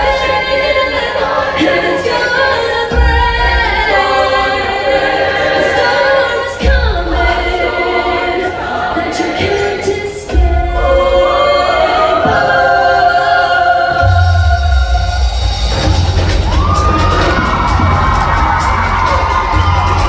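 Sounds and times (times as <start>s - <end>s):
choir singing in harmony: 0.0s - 20.0s
deep bass: 14.0s - 20.0s.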